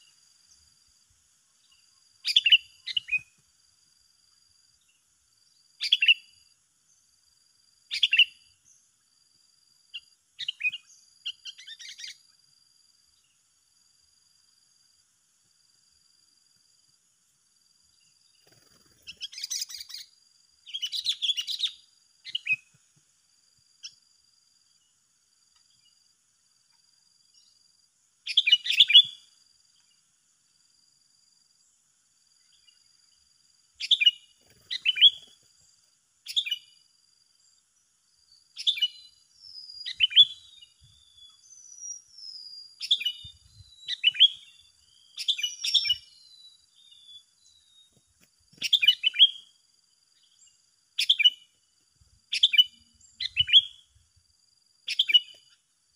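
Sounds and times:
bulbuls chirping: 0:33.8 - 0:35.4.

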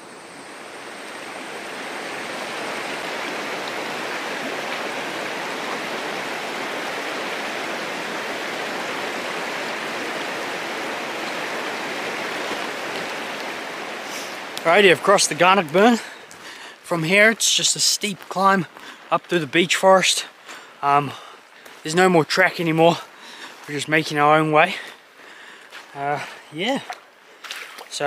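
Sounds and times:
river rushing over rocks: 0:00.0 - 0:18.8.

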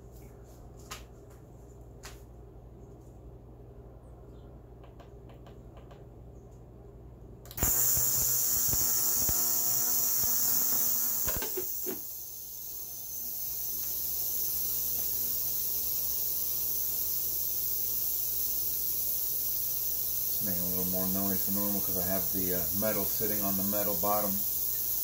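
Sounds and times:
ultrasonic cleaner hiss and buzz: 0:07.5 - 0:25.0.

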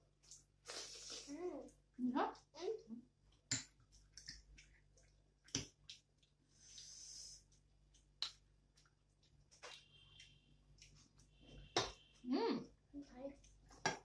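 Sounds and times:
eating clicks and smacks: 0:03.3 - 0:06.4, 0:07.8 - 0:11.9.

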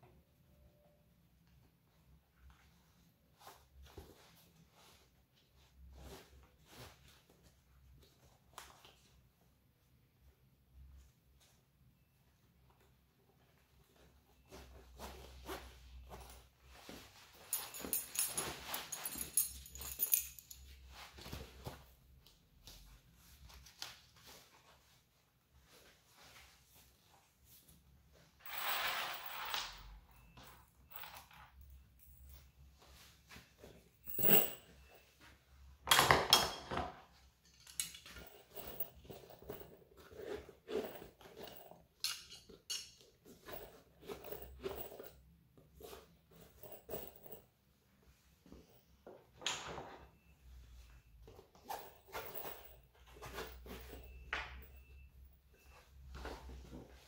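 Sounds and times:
nylon webbing rustling: 0:14.0 - 0:22.0
metal buckle clinking: 0:17.3 - 0:20.9, 0:34.0 - 0:35.0, 0:37.4 - 0:39.7, 0:40.9 - 0:43.1.

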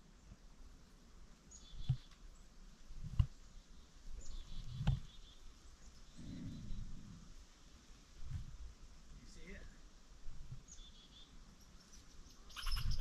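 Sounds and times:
faint bird chirps: 0:01.5 - 0:02.5, 0:03.3 - 0:07.3, 0:10.5 - 0:13.0
soft low knocks on camera: 0:03.0 - 0:03.4.

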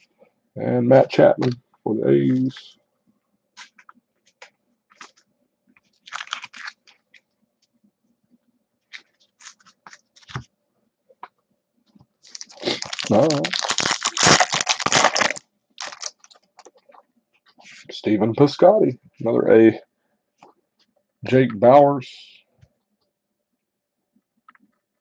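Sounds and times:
cards rustling and clicking: 0:03.6 - 0:07.3, 0:08.8 - 0:10.5
foil wrapper tearing and crinkling: 0:06.0 - 0:07.0, 0:08.9 - 0:10.4, 0:12.2 - 0:16.7.

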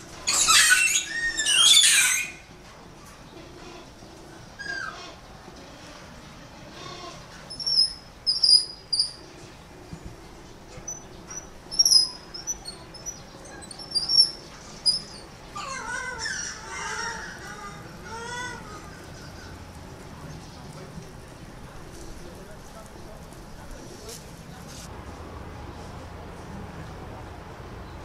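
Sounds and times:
high-pitched animal chirps: 0:00.3 - 0:02.4, 0:07.5 - 0:09.2, 0:10.9 - 0:17.2
faint low animal calls: 0:03.3 - 0:09.2, 0:10.8 - 0:20.9.

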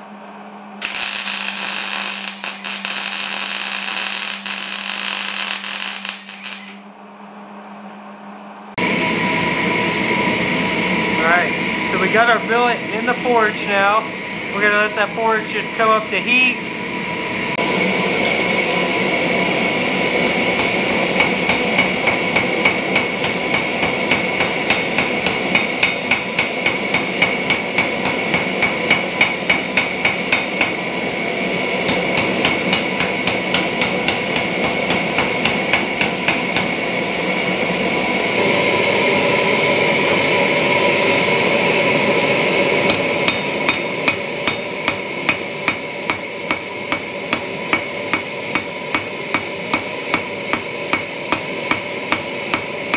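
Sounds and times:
forge running: 0:00.0 - 0:52.9
hammer striking metal on anvil: 0:20.6 - 0:30.8, 0:31.8 - 0:36.8, 0:42.9 - 0:52.9.

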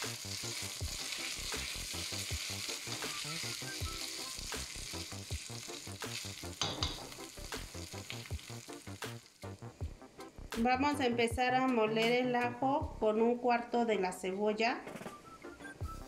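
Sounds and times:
rice sizzling in oil: 0:00.0 - 0:09.8.

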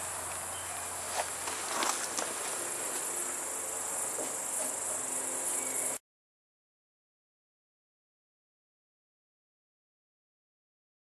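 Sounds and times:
crickets chirring: 0:00.0 - 0:06.0.

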